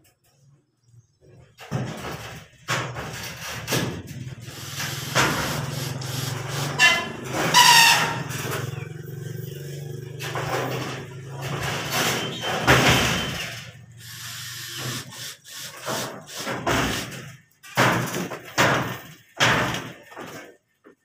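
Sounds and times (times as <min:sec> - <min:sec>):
cordless drill driving screws: 0:14.0 - 0:17.0.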